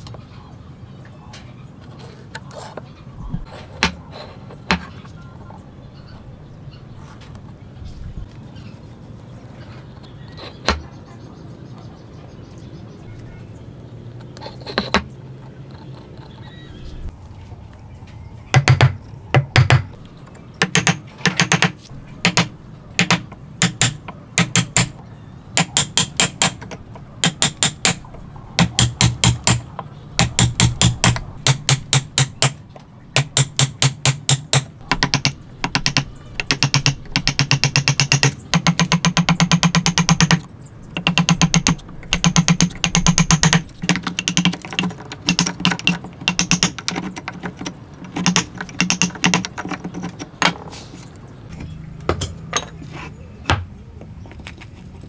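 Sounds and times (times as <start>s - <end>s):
hammer striking chisel into wood: 18.6s - 19.8s, 20.6s - 25.0s, 25.6s - 32.6s, 33.2s - 40.4s, 41.0s - 50.6s.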